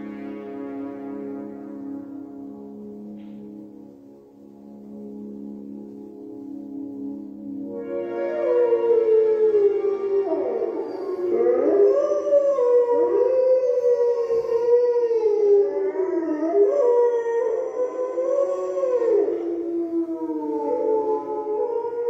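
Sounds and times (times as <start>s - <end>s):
wolves howling in chorus: 7.7s - 22.0s.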